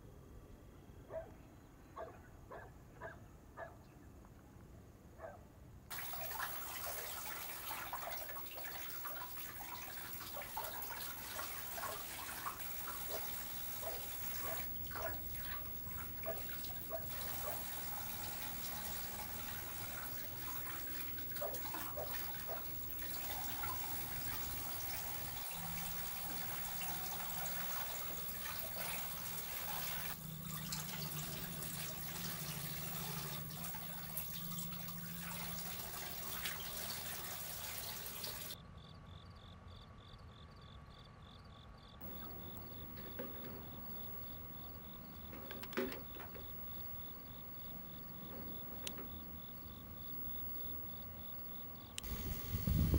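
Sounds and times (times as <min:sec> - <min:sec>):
crickets chirping: 0:05.9 - 0:37.6, 0:38.6 - 0:52.9
water running and splashing: 0:05.9 - 0:38.6, 0:52.0 - 0:52.9.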